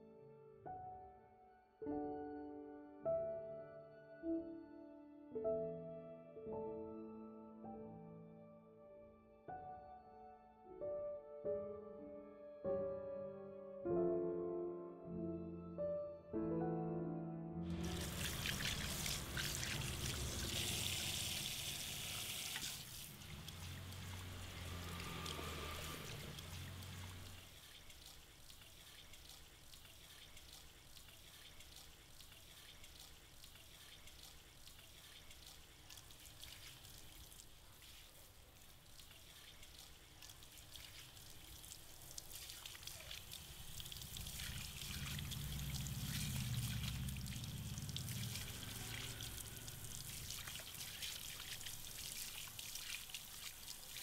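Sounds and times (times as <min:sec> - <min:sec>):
shower water splashing into basin: 0:17.7 - 0:54.0.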